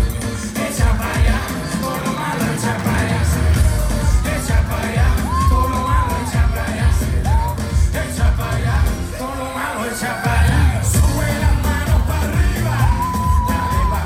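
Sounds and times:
live dance-pop music: 0.0 - 14.0
vocals: 0.0 - 14.0
heavy pulsing bass beat: 2.6 - 9.2, 10.3 - 14.0.

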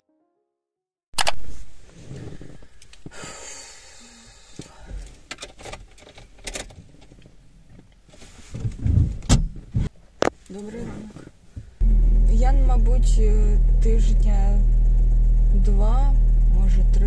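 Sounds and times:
rustling and handling noise: 1.2 - 3.2, 4.7 - 11.8
low thumps: 8.6 - 9.9, 11.6 - 15.6.

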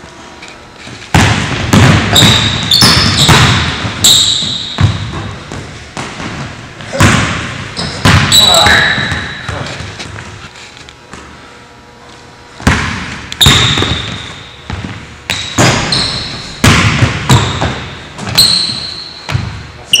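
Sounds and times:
sneakers squeaking: 0.6 - 11.7, 12.4 - 20.0
basketball bouncing on hardwood floor: 1.1 - 9.7, 12.6 - 19.6.

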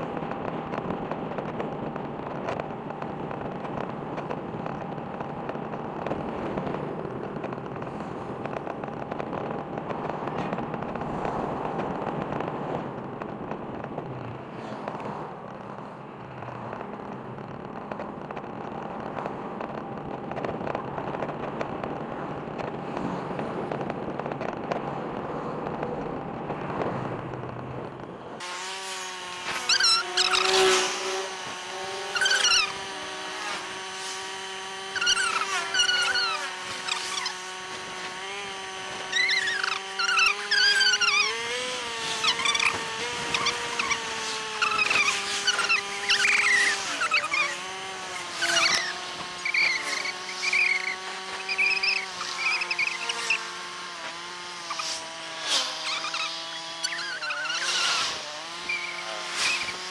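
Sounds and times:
steady rushing noise: 0.0 - 59.9
motorcycle engine tone: 29.2 - 59.9
high squeaky chirps: 29.6 - 30.8, 32.0 - 33.5, 34.8 - 37.4, 38.9 - 53.5, 54.6 - 55.0, 55.7 - 59.8.

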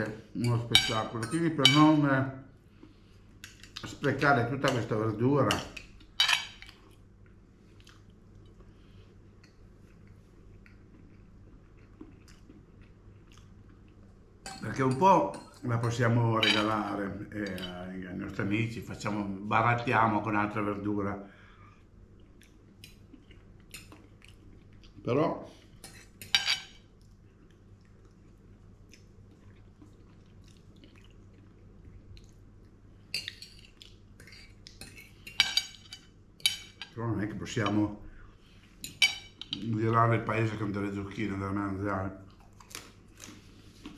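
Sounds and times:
faint chewing: 5.8 - 14.2, 21.6 - 26.2, 26.8 - 35.3, 42.2 - 43.9.

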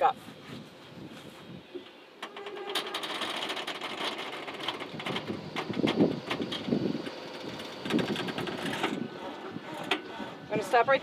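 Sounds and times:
tyres rolling onto plastic levelers: 2.2 - 11.0.

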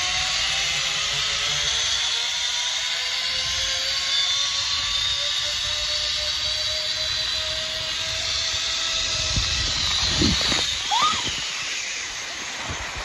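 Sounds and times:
pulleys whining on cable: 0.0 - 13.0
wind on microphone: 7.2 - 13.0.

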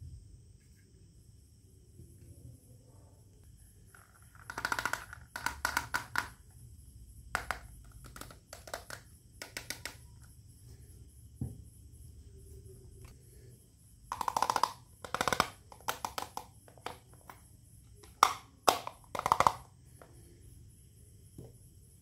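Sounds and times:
plastic toy pieces clattering: 3.9 - 6.4, 14.1 - 17.4, 18.0 - 19.7
dull knock: 11.4 - 11.6.

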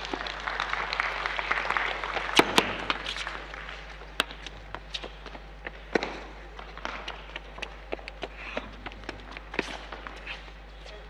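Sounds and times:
applause: 0.0 - 3.9
tennis balls bouncing: 2.3 - 11.0
quick footsteps on hard court: 2.4 - 11.0.

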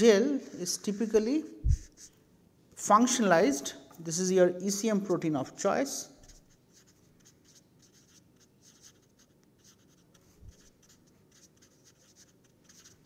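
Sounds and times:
marker scratching on paper: 0.9 - 2.2, 6.2 - 13.0.

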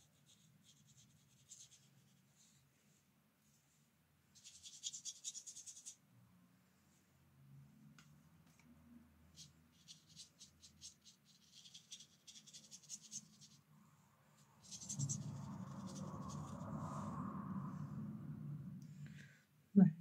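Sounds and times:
brush stroking on paper: 0.0 - 6.0, 9.3 - 17.2
loud steady rushing noise: 14.4 - 18.9.

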